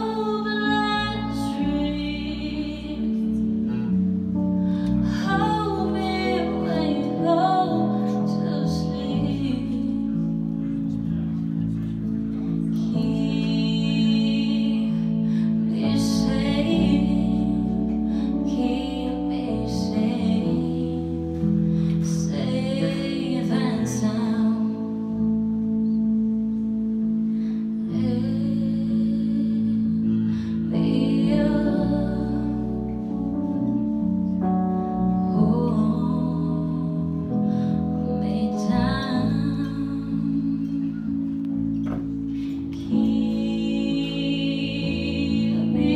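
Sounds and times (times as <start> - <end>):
woman singing: 0.0 - 4.0, 4.8 - 11.0, 12.6 - 25.6, 27.8 - 33.9, 35.1 - 42.0, 42.7 - 45.9
electric bass: 0.0 - 45.9
keyboard chords: 0.0 - 45.9.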